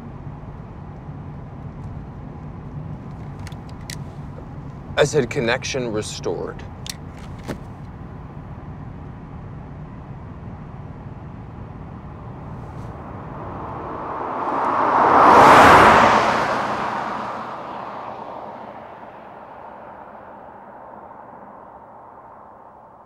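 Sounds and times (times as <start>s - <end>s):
car passing by: 12.0s - 23.0s.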